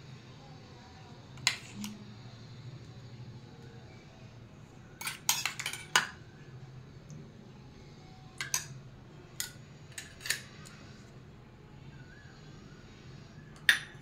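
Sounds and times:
low steady hum: 0.0 - 14.0
metal spoon clinking against bowl: 5.0 - 6.2, 8.4 - 8.8, 9.4 - 10.7, 13.6 - 14.0.

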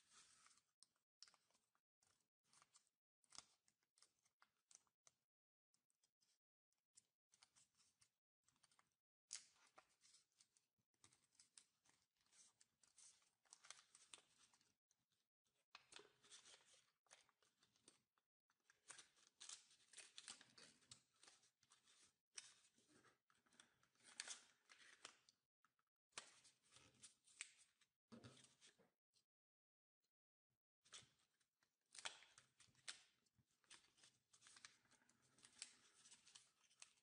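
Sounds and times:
paper rustling and crinkling: 33.6 - 37.0.

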